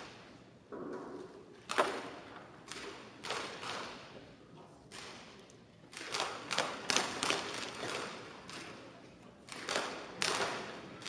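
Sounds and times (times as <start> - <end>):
bb guns firing: 1.6 - 4.2, 4.9 - 11.0.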